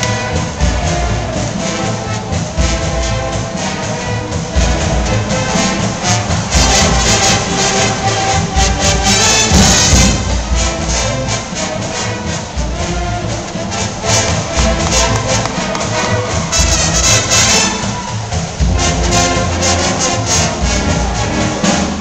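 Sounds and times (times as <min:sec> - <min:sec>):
brass band music: 0:00.0 - 0:22.0
drums keeping a beat: 0:00.0 - 0:22.0.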